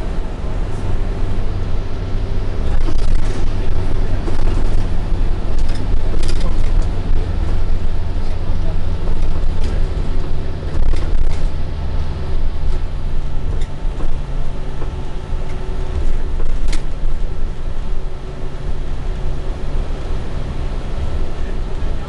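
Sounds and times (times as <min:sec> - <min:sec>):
bus engine drone: 0:00.0 - 0:22.0
road noise: 0:00.0 - 0:22.0
rattles and clicks: 0:02.6 - 0:08.4, 0:09.0 - 0:11.6, 0:12.6 - 0:17.4.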